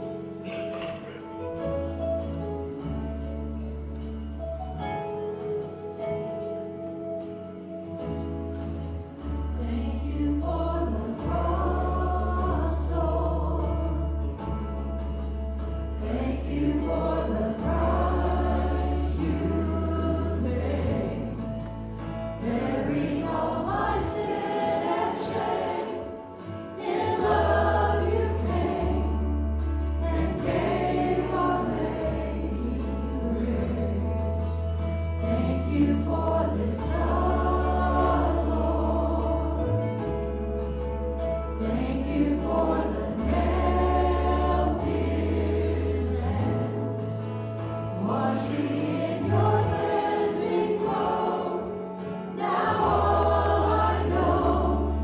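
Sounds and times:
congregation singing: 0:00.0 - 0:02.2, 0:02.9 - 0:55.0
deep bass notes: 0:08.2 - 0:25.7, 0:27.0 - 0:50.2, 0:52.5 - 0:55.0.

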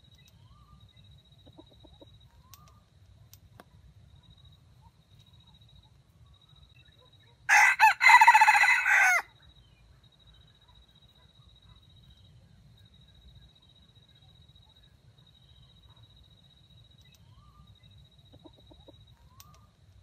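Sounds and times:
rooster crowing: 0:07.5 - 0:09.3.

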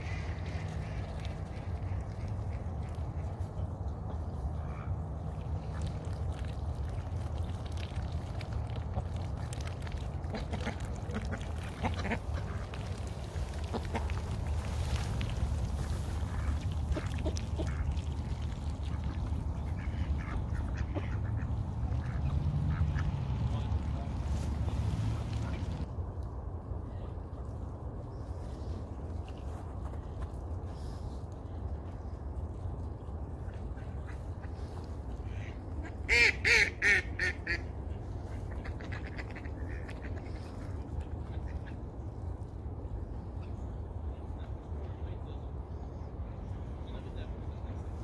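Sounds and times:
steady low rumble: 0:00.0 - 0:48.0
ducks quacking: 0:10.2 - 0:15.2, 0:15.8 - 0:25.8, 0:33.4 - 0:41.8
duck quacking: 0:36.1 - 0:37.6.

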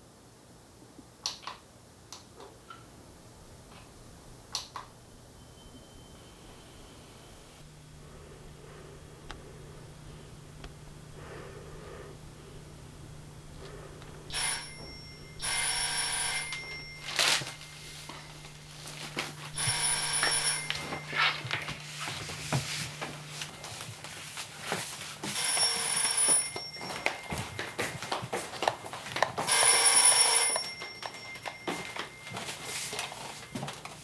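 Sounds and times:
telephone bell ringing: 0:00.0 - 0:07.6, 0:14.3 - 0:19.0, 0:19.6 - 0:21.7, 0:25.3 - 0:27.9, 0:29.4 - 0:34.0.

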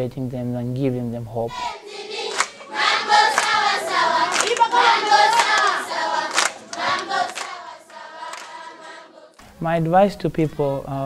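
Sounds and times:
children singing in chorus: 0:01.5 - 0:09.5
hand clapping: 0:02.3 - 0:08.7.

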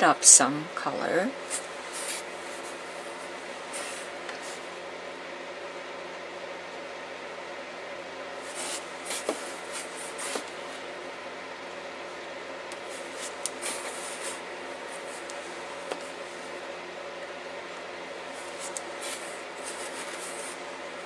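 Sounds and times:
brush swishing on paper: 0:01.5 - 0:02.9, 0:08.4 - 0:10.8, 0:12.9 - 0:16.5, 0:18.3 - 0:20.7.

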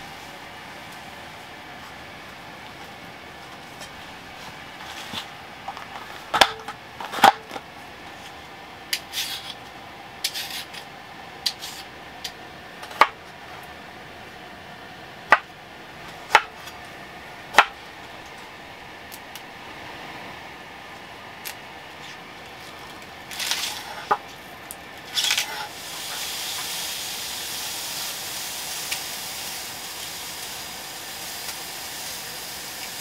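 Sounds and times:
peeler scraping carrot: 0:09.0 - 0:09.6, 0:10.2 - 0:10.8.

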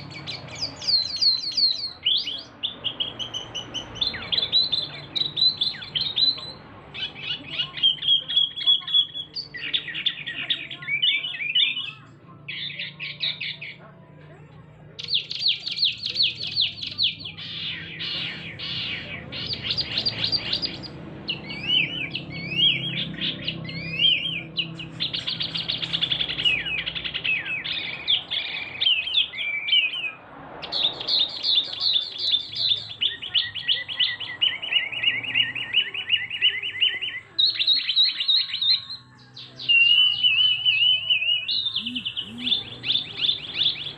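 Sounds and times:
bird singing high trills: 0:15.0 - 0:43.9.

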